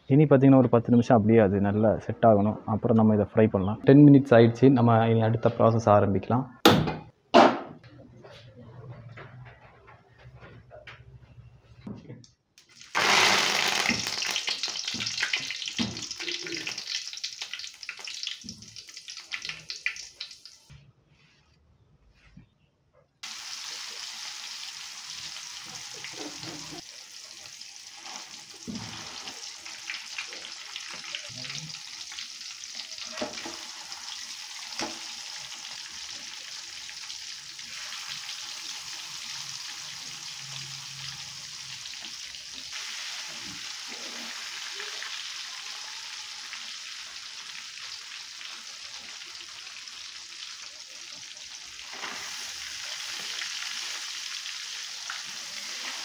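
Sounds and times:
fish sizzling in hot oil: 0:12.6 - 0:20.7, 0:23.2 - 0:56.0.

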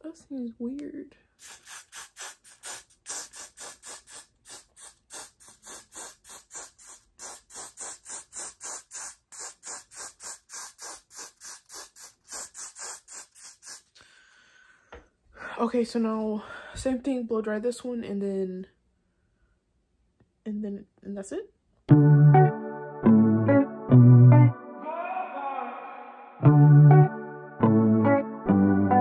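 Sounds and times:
aerosol can spray hissing: 0:01.4 - 0:14.0.

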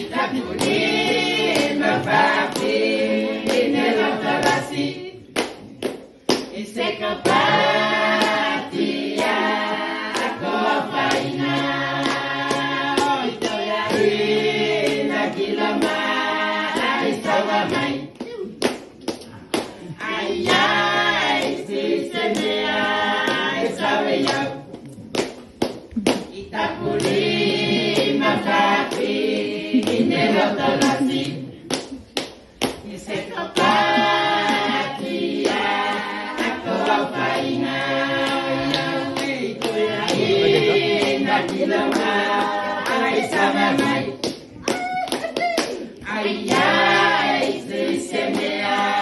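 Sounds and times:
group singing unaccompanied: 0:00.0 - 0:18.2, 0:19.6 - 0:24.8, 0:26.1 - 0:31.9, 0:32.6 - 0:44.8, 0:45.8 - 0:49.0
sharp hand claps: 0:00.5 - 0:02.8, 0:03.4 - 0:06.6, 0:07.2 - 0:09.4, 0:10.0 - 0:10.4, 0:11.0 - 0:16.1, 0:16.7 - 0:17.0, 0:17.6 - 0:21.6, 0:24.2 - 0:27.2, 0:30.7 - 0:32.8, 0:38.2 - 0:48.9.

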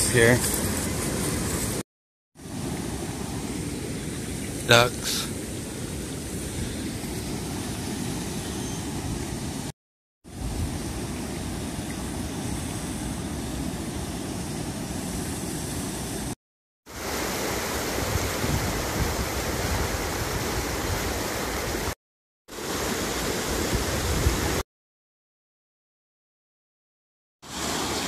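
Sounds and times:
river water rushing: 0:16.9 - 0:21.9, 0:22.6 - 0:24.5, 0:27.5 - 0:28.0.

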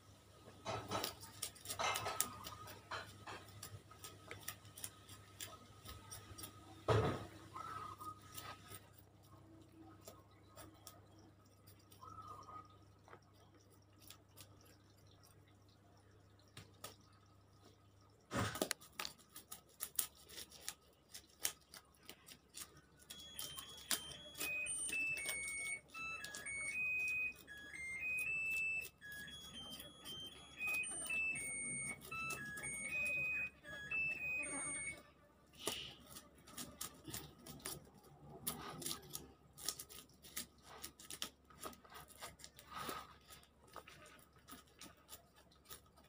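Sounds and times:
electronic beeping melody: 0:23.1 - 0:35.0.

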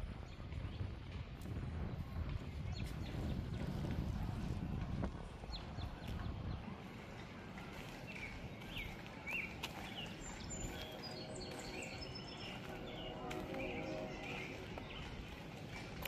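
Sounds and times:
footsteps on dirt path: 0:00.0 - 0:16.0
wind rumble on microphone: 0:00.0 - 0:16.0
small birds chirping: 0:05.4 - 0:16.0.

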